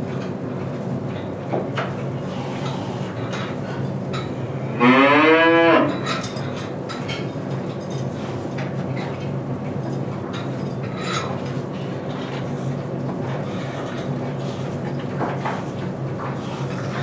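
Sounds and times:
cow mooing: 0:04.7 - 0:06.0.

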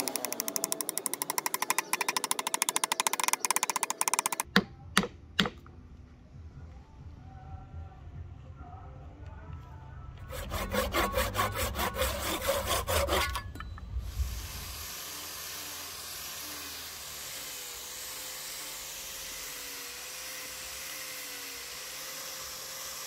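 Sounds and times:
saw cutting wood: 0:00.0 - 0:04.6, 0:10.2 - 0:13.5, 0:14.1 - 0:23.0.

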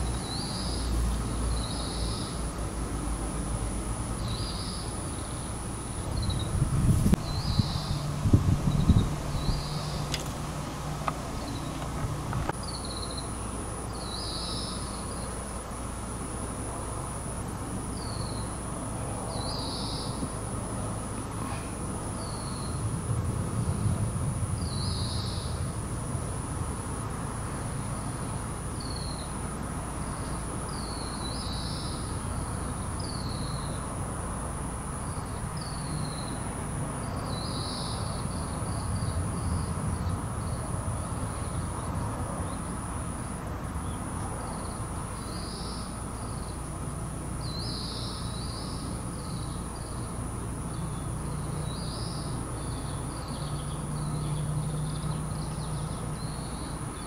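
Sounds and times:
small birds chirping: 0:00.0 - 0:02.5, 0:04.2 - 0:15.5, 0:17.9 - 0:18.6, 0:19.3 - 0:20.4, 0:21.1 - 0:22.8, 0:30.1 - 0:33.9, 0:35.0 - 0:42.7, 0:43.8 - 0:46.8, 0:47.4 - 0:57.0
low outdoor rumble: 0:00.0 - 0:13.9, 0:14.9 - 0:28.7.

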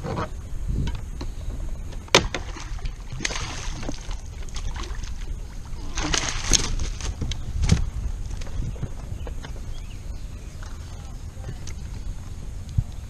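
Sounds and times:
low rumble: 0:00.0 - 0:13.0
fish splashing at water surface: 0:02.2 - 0:07.8.

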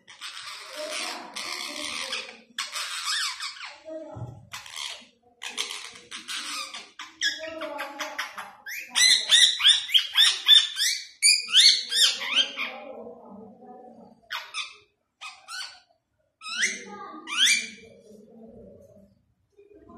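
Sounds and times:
parakeet calling: 0:00.0 - 0:03.8, 0:04.5 - 0:12.9, 0:14.2 - 0:17.9.

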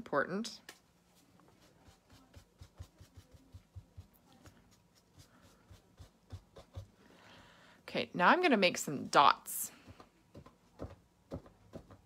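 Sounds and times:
fingertips dabbing paint on canvas: 0:00.6 - 0:07.0.

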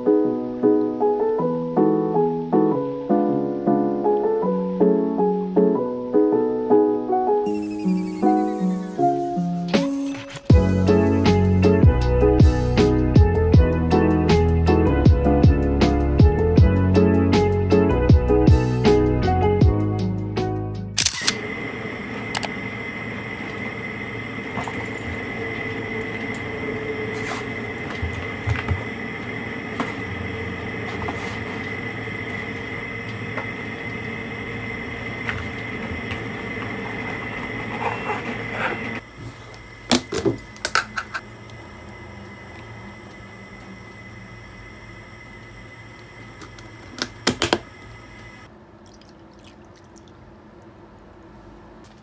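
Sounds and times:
piano music: 0:00.0 - 0:09.8.

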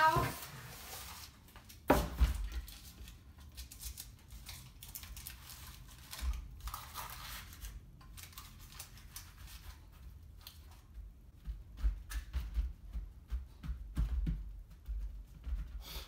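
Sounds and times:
baking paper rustling: 0:00.0 - 0:11.0.

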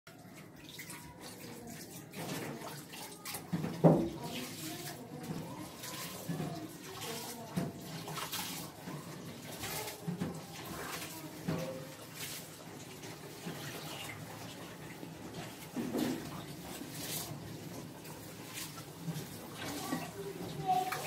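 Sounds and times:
water splashing: 0:00.1 - 0:21.0.

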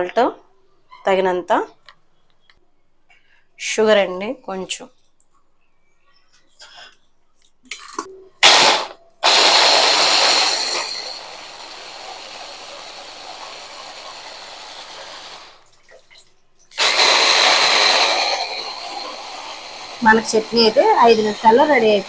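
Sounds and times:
mini chopper motor whining: 0:08.4 - 0:15.6, 0:16.8 - 0:22.0.

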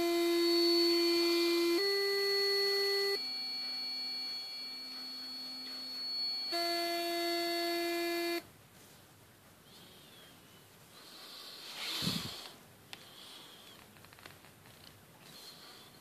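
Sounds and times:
electric toothbrush buzzing: 0:00.0 - 0:08.4.

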